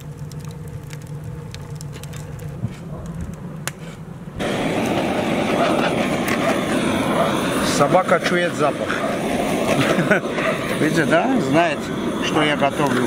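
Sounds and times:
fire popping: 0:00.0 - 0:13.0
wood fire crackling: 0:00.0 - 0:13.0
gas torch hissing: 0:03.7 - 0:13.0.

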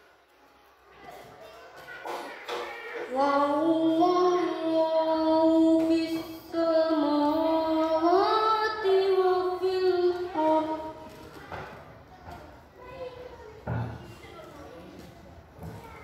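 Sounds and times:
boy reciting melodically: 0:02.2 - 0:11.8.

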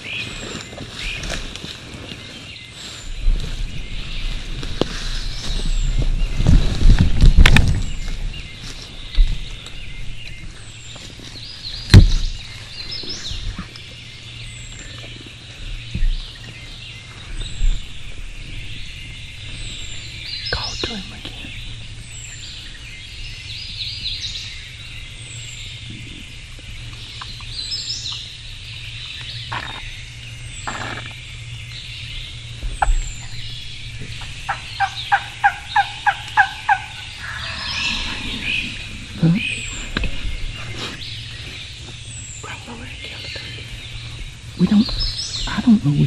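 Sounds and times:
insects buzzing: 0:00.0 - 0:46.0
woodland birds chorus: 0:00.0 - 0:46.0
turkey call yelping: 0:34.5 - 0:38.4.

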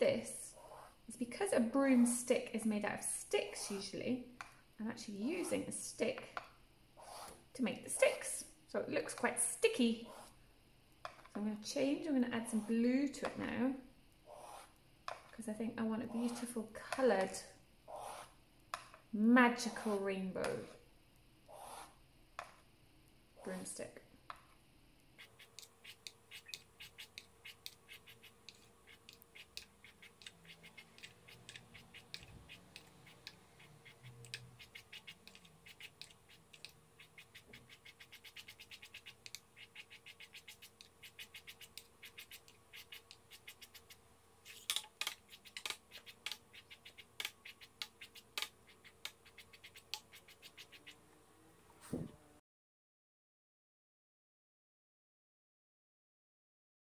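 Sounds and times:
stick scratching on paper: 0:07.0 - 0:08.2, 0:12.4 - 0:13.4, 0:14.3 - 0:14.7, 0:16.0 - 0:16.6, 0:17.9 - 0:18.3, 0:21.5 - 0:22.0, 0:25.2 - 0:51.0.

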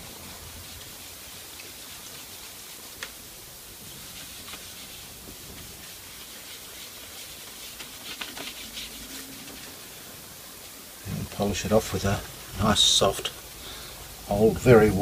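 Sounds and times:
steady hiss: 0:00.0 - 0:15.0
hand polishing radio cabinet: 0:04.0 - 0:10.0.

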